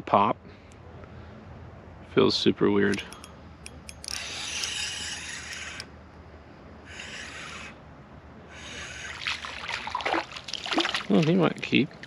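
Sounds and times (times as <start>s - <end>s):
fishing reel whirring: 3.8s - 5.9s, 6.8s - 7.8s.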